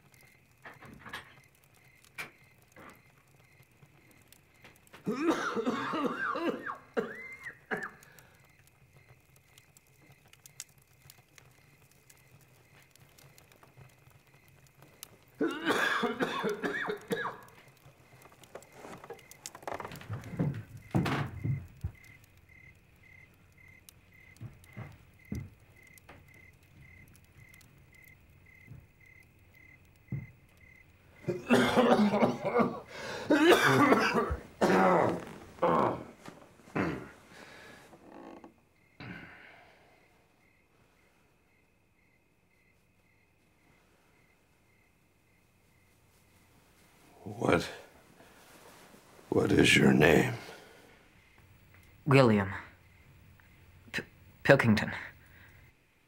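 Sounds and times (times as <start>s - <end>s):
man coughing: 5.1s - 8.0s, 15.4s - 17.4s, 31.3s - 35.2s, 36.7s - 37.1s.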